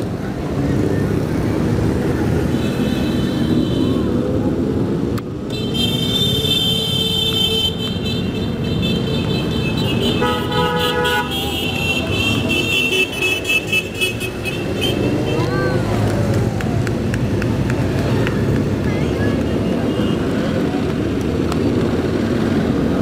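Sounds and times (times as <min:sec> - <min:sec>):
high horn tone: 0:08.8 - 0:14.2
horn blaring: 0:09.4 - 0:14.3
motorcycle engines running: 0:11.3 - 0:23.0.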